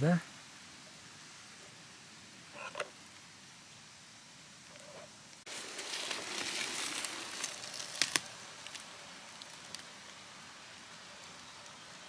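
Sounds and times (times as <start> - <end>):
dry grass and leaves rustling: 0.3 - 12.0
sharp snaps: 7.8 - 10.0.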